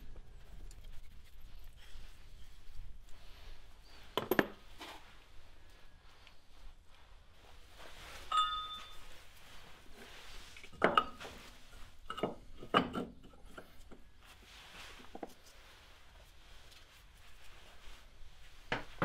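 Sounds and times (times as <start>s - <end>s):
metal tool clink: 8.3s - 9.1s.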